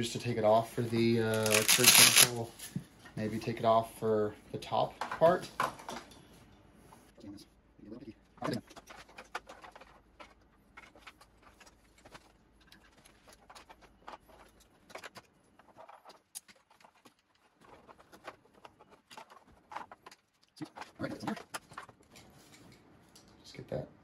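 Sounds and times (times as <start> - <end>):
strap buckles clicking: 1.3 - 2.3.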